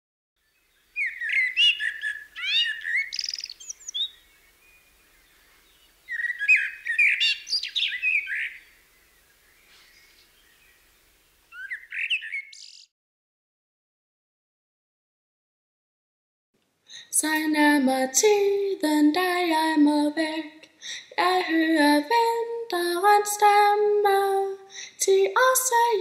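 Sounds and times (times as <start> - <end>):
songbird chirps and trills: 0.4 - 12.9.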